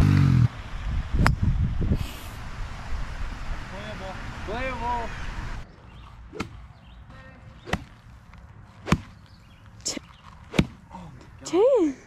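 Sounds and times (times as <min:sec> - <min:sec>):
golf club swishing and striking turf: 0:07.6 - 0:09.3.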